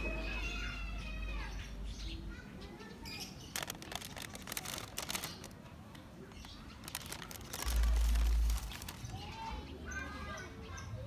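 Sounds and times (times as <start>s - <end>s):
crackly rustling of paper packing: 3.2s - 9.5s.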